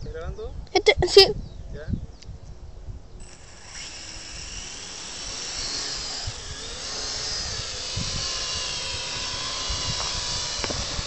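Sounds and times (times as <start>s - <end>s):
drone propellers whining: 3.2s - 11.0s.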